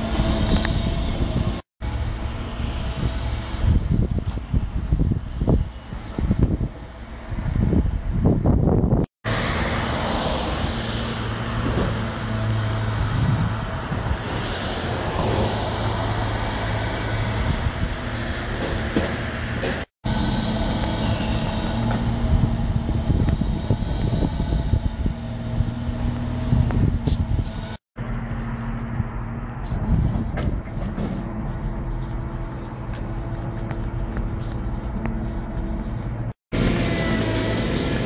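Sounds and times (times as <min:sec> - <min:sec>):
excavator diesel engine running: 0:18.5 - 0:26.6, 0:27.6 - 0:38.0.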